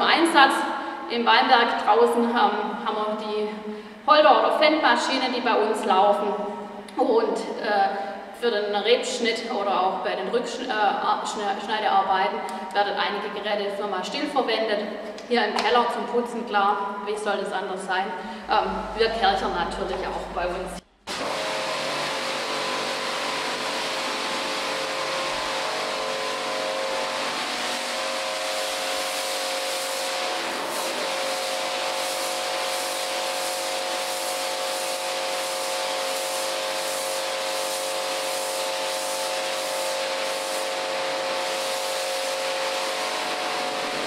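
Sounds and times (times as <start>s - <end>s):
cleaning machine rushing: 18.3s - 44.0s.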